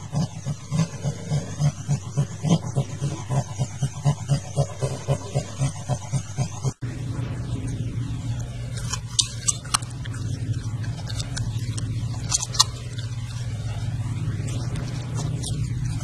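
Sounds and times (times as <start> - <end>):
steady low hum: 0.0 - 16.0
puppy crunching carrot: 8.3 - 16.0.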